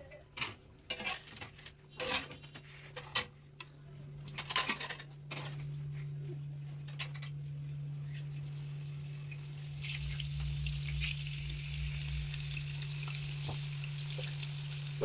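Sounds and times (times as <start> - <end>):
low hum: 5.2 - 15.0.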